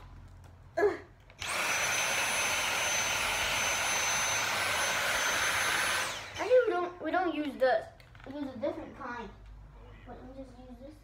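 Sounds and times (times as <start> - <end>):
stick vacuum running: 1.3 - 6.7.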